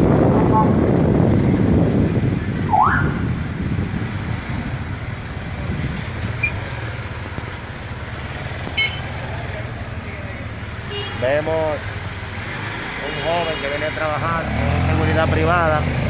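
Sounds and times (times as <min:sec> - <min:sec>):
motorcycle engines running: 0:00.0 - 0:16.0
road noise: 0:00.0 - 0:16.0
rising siren whoop: 0:02.6 - 0:03.4.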